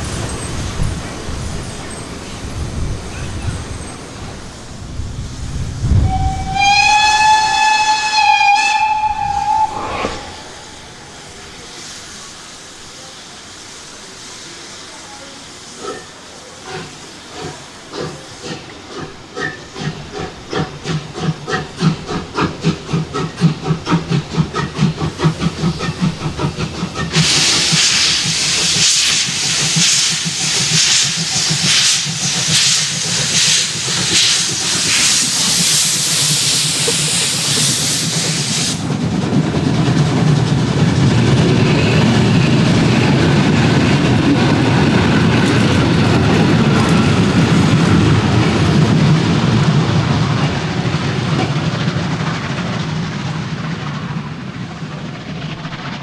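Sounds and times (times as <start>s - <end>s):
loud hiss of steam: 0.0s - 56.0s
steam locomotive whistle: 6.0s - 10.8s.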